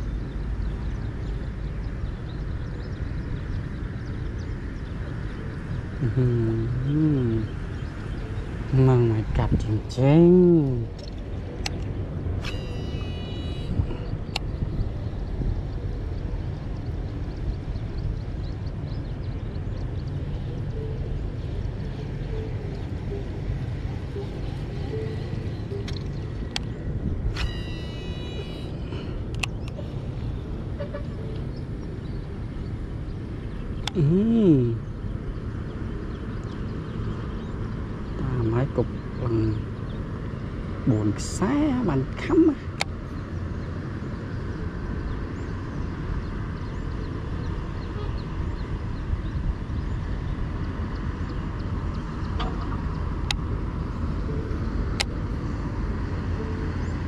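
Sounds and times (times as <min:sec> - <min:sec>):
wind rumble on microphone: 0:00.0 - 0:57.0
reel sharp click: 0:11.0 - 0:13.1
fishing reel spool whine: 0:12.4 - 0:14.1, 0:27.3 - 0:28.8
sharp clicks: 0:29.3 - 0:29.8.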